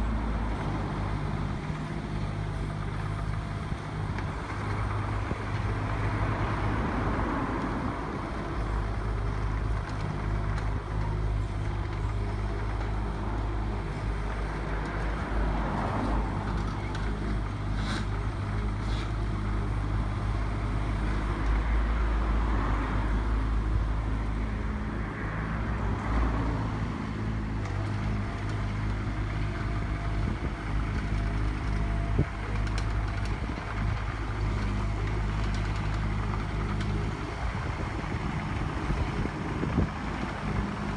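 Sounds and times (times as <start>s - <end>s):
diesel engine running: 0.0s - 40.9s
hydraulics whining: 26.7s - 40.9s.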